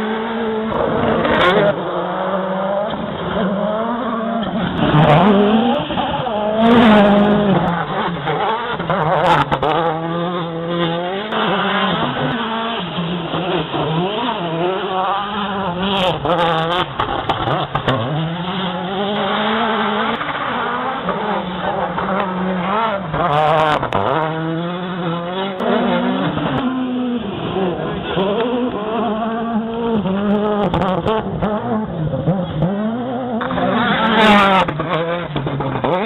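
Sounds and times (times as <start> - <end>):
rally car engine running hard: 0.0 - 36.0.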